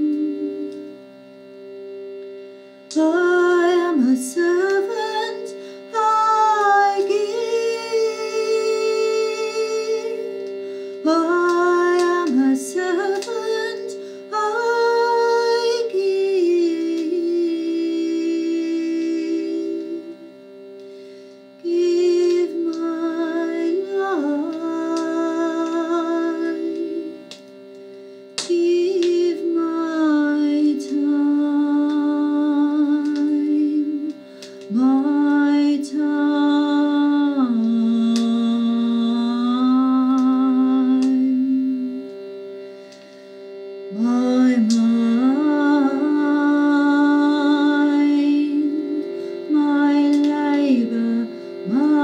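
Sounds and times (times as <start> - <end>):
held accompanying tones: 0.0 - 52.0
woman humming: 21.6 - 27.1, 28.5 - 42.1.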